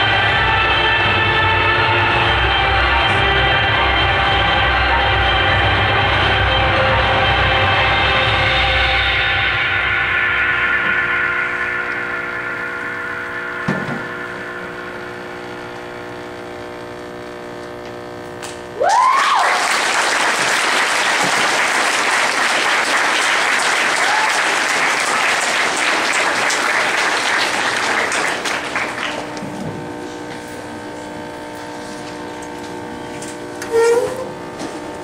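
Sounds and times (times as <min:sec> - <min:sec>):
sustained musical chord: 0:00.0 - 0:15.9
audience applause: 0:18.8 - 0:29.4
audience whooping: 0:18.8 - 0:29.4.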